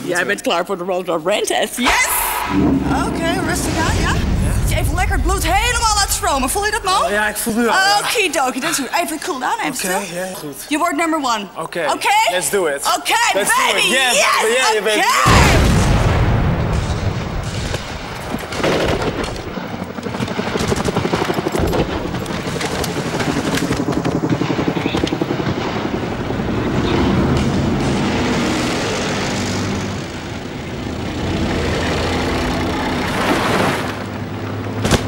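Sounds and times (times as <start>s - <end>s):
explosion: 1.8s - 7.6s, 15.3s - 30.9s
rapid gunfire: 15.4s - 30.0s.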